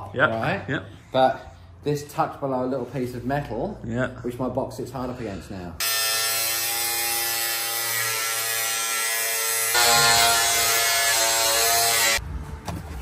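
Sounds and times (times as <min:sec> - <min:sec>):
angle grinder cutting plastic: 0:05.8 - 0:12.2.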